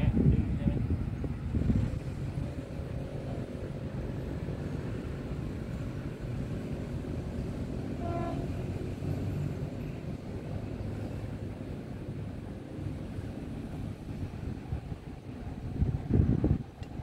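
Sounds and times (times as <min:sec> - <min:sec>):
steady low rumble: 0:00.0 - 0:08.0, 0:08.6 - 0:17.0
short horn blast: 0:08.0 - 0:08.6.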